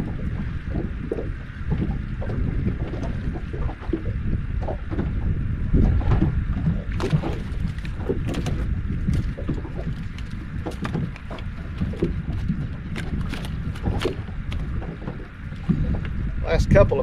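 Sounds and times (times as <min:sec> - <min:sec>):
water lapping against boat hull: 0:00.0 - 0:17.0
wind buffeting microphone: 0:00.0 - 0:17.0
fishing rod ticks and knocks: 0:06.0 - 0:16.2.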